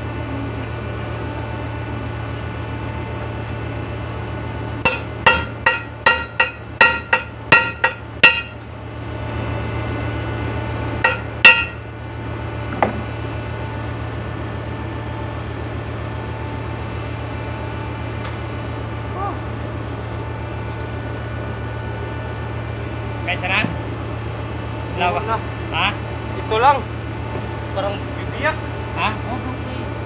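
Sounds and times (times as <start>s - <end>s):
hammer striking steel: 4.8s - 8.6s, 11.0s - 11.8s.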